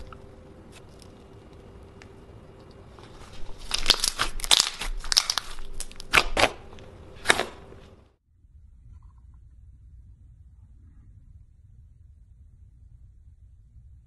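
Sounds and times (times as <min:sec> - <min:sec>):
slime crackling and popping: 0:03.3 - 0:06.6.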